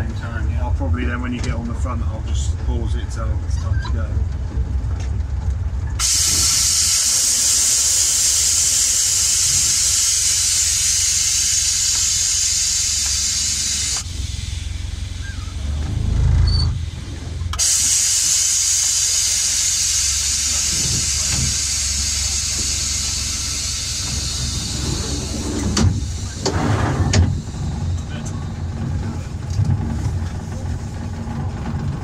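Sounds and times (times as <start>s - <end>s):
locomotive hissing: 5.9s - 32.0s
low rumble: 14.1s - 17.6s.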